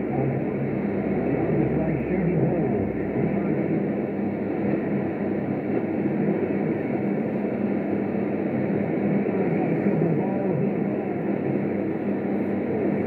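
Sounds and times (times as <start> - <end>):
radio static: 0.0 - 7.1, 8.9 - 11.8
faint low hum: 0.0 - 13.0.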